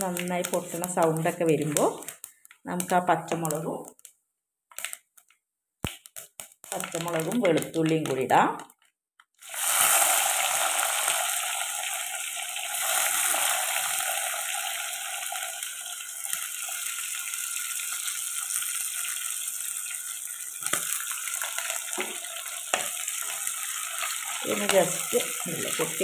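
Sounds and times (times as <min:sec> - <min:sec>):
chillies crackling in oil: 0:00.0 - 0:04.1, 0:04.7 - 0:26.0
garlic sizzling in hot oil: 0:00.0 - 0:04.1, 0:05.8 - 0:08.8, 0:09.4 - 0:26.0.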